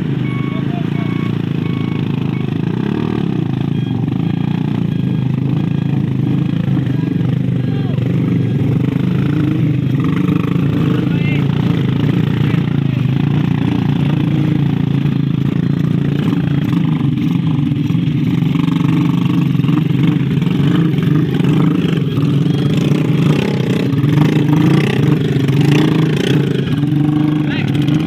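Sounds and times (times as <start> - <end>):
motorcycle engines revving hard: 0.0 - 28.0.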